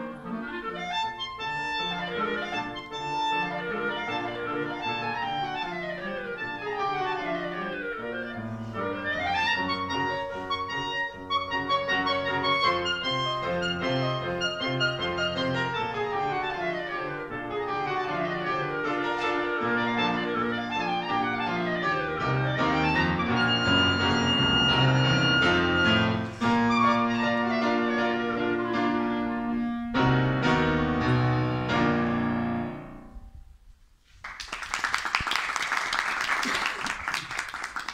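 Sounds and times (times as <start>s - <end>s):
clarinet: 0.0s - 33.4s
piano chords: 0.0s - 33.4s
audience applause: 34.2s - 37.9s.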